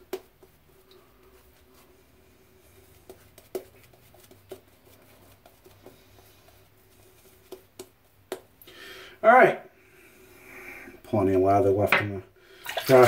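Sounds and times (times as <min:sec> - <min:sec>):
shaving brush brushing face: 0:02.6 - 0:07.6.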